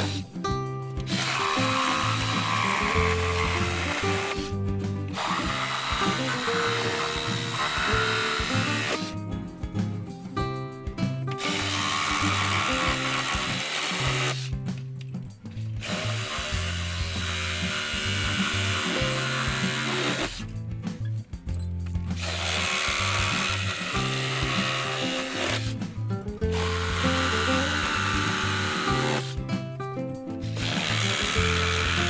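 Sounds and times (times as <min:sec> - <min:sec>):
background music: 0:00.0 - 0:32.0
reciprocating saw cutting wood: 0:01.0 - 0:09.2, 0:11.4 - 0:14.5, 0:15.8 - 0:20.4, 0:22.2 - 0:25.8, 0:26.4 - 0:29.4, 0:30.4 - 0:32.0.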